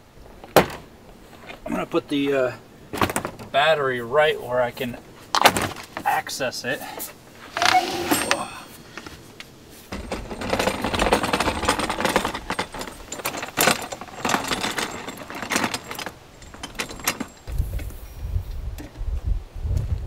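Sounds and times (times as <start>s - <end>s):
cart rattling over ground: 7.4s - 9.2s, 9.9s - 17.8s.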